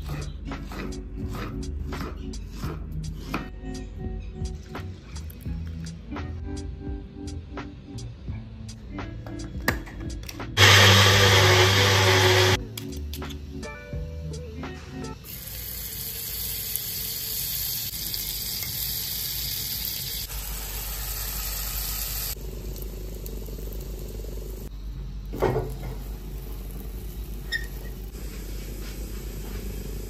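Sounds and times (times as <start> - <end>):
batter sizzling in a frying pan: 15.3 - 24.7.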